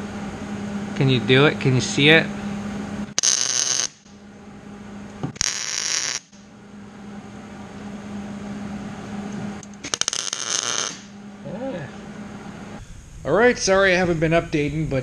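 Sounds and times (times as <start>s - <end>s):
steady low hum: 0.0s - 15.0s
welding crackling hiss: 3.2s - 4.1s, 5.3s - 6.4s, 9.6s - 11.2s.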